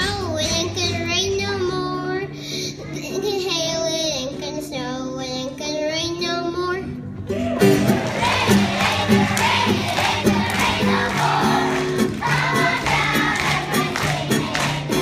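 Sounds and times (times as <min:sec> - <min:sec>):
instrumental accompaniment: 0:07.0 - 0:15.0
children singing in unison: 0:08.1 - 0:15.0.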